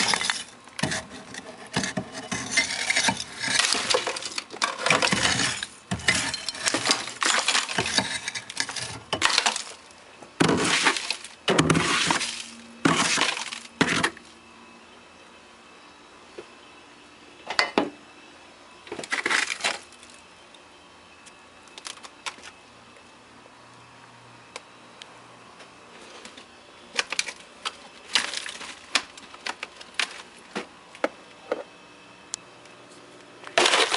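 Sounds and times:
metal tool scraping ice: 0:00.0 - 0:09.8, 0:10.4 - 0:14.2
ice chunks clinking: 0:00.0 - 0:14.2, 0:19.0 - 0:20.0, 0:27.0 - 0:30.3, 0:33.5 - 0:33.9
ice crunching: 0:00.0 - 0:14.2, 0:19.0 - 0:20.2, 0:27.0 - 0:30.5, 0:33.5 - 0:33.9.

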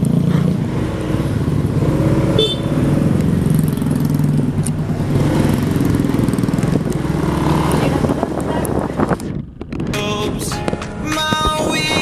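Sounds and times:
motorcycle engine running: 0:00.0 - 0:12.0
horn toot: 0:02.3 - 0:02.8.

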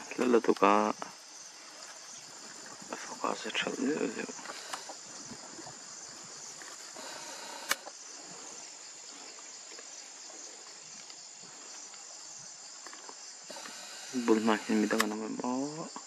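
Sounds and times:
insects chorus: 0:00.0 - 0:16.0
sharp click: 0:07.6 - 0:07.9, 0:13.5 - 0:15.2.

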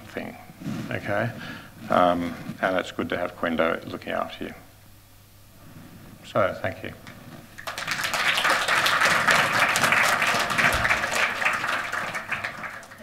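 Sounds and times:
audience applauding: 0:07.6 - 0:13.0.

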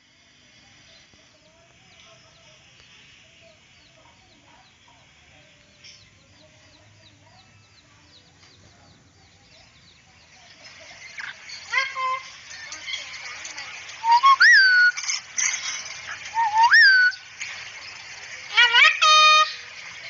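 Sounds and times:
lower wavering bird calls: 0:14.0 - 0:15.2, 0:16.1 - 0:17.3.

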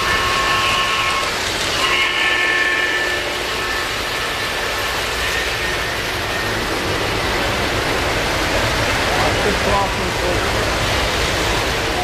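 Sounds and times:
train whistle: 0:00.0 - 0:06.7
model train motor and wheels: 0:00.0 - 0:12.0.

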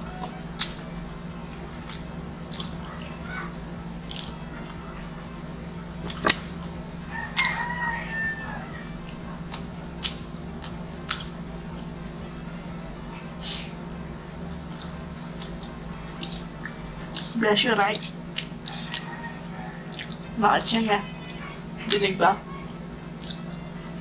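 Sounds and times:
chewing: 0:00.1 - 0:00.9, 0:01.6 - 0:03.0, 0:04.0 - 0:05.4, 0:06.0 - 0:12.0, 0:14.5 - 0:23.7
rooster crowing: 0:07.0 - 0:09.1, 0:18.6 - 0:20.2.

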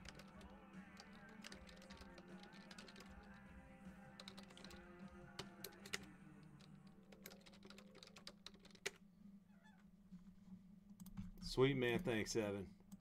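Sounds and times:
computer keyboard typing: 0:00.0 - 0:03.4, 0:04.2 - 0:09.0.

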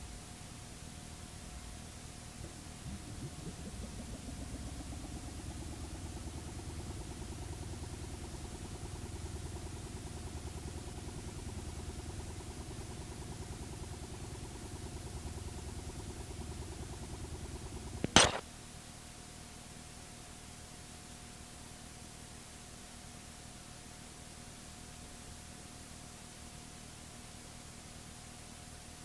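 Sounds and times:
tape hiss: 0:00.0 - 0:18.4
faint constant tone: 0:00.0 - 0:29.0
low rumble: 0:02.4 - 0:06.0
sharp click: 0:18.0 - 0:18.4.

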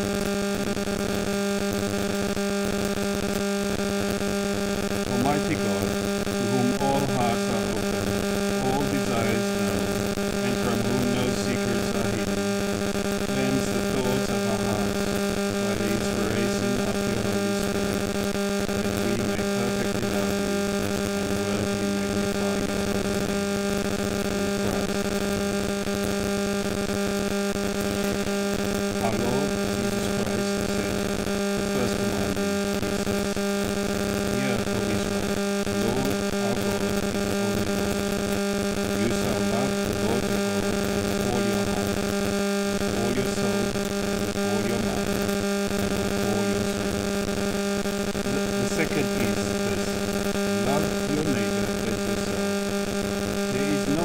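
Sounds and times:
mains hum and buzz: 0:00.0 - 0:54.0
faint man's voice: 0:05.1 - 0:12.4, 0:13.3 - 0:15.0, 0:15.6 - 0:18.0, 0:18.7 - 0:23.0, 0:24.5 - 0:25.0, 0:29.0 - 0:31.0, 0:31.6 - 0:33.0, 0:34.3 - 0:35.2, 0:35.8 - 0:38.0, 0:38.9 - 0:40.5, 0:41.1 - 0:42.0, 0:42.9 - 0:45.2, 0:46.2 - 0:46.9, 0:48.3 - 0:50.0, 0:50.6 - 0:52.4, 0:53.5 - 0:54.0.

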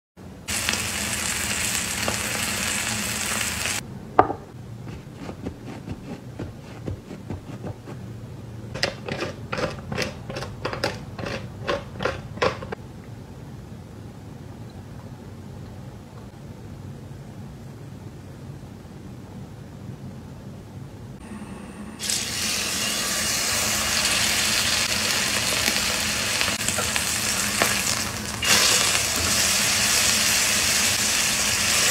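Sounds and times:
steak sizzling on a griddle: 0:00.5 - 0:03.8.

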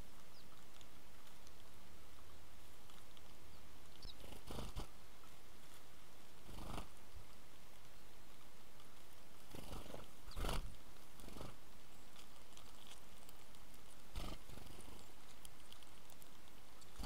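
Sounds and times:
sparrow wings whirring: 0:09.6 - 0:10.7.

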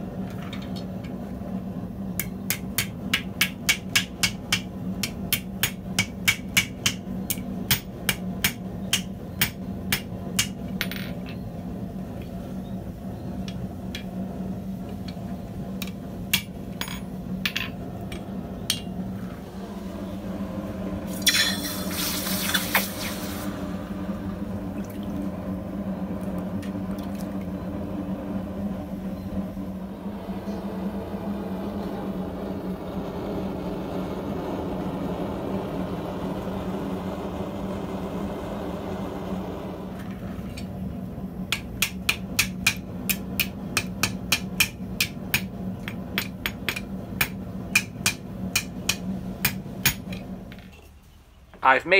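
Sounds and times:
hot steel hissing in water: 0:21.0 - 0:23.7.

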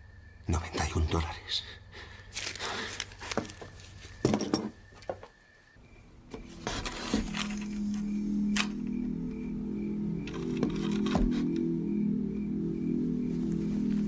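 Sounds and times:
low sustained music notes: 0:05.8 - 0:14.0.

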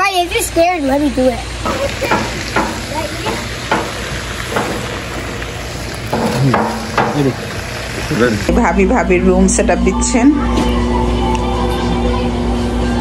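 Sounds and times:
wood fire crackling and popping: 0:01.7 - 0:09.0.

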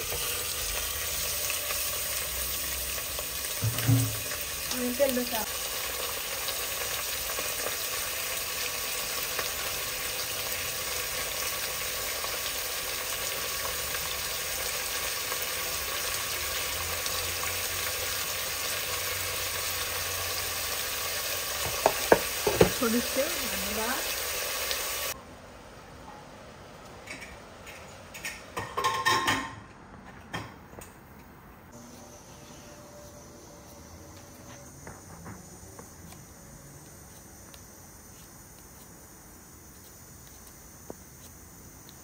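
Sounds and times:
meat and onions sizzling in oil: 0:00.0 - 0:25.2.

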